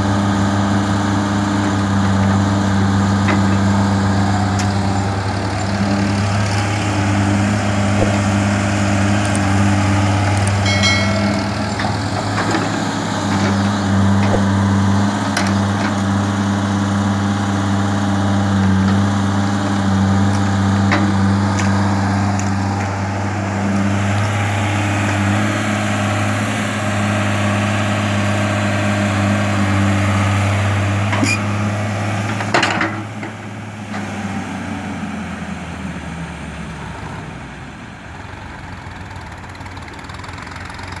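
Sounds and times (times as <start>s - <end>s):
excavator diesel engine running: 0.0s - 41.0s
sharp metal clanks: 10.6s - 13.1s.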